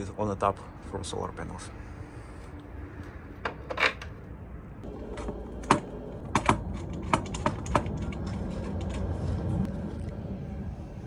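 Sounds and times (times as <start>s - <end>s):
low steady rumble: 0.0s - 11.0s
sharp clicks and metallic knocks: 5.1s - 9.1s.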